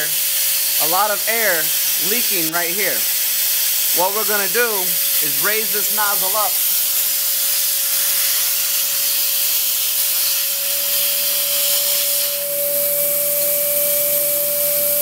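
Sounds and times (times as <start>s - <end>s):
compressed air hissing: 0.0s - 15.0s
spinning turbine whine: 10.4s - 15.0s.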